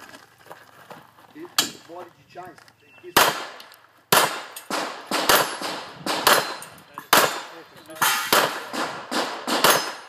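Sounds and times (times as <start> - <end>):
pistol shots with echo: 3.1 - 10.0.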